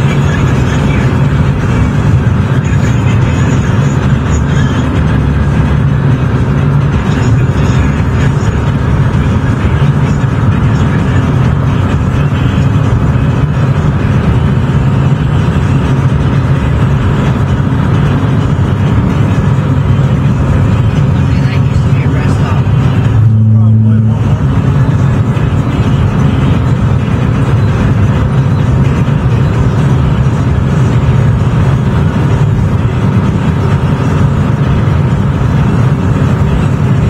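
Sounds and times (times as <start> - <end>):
car engine and road noise: 0.0 - 37.0.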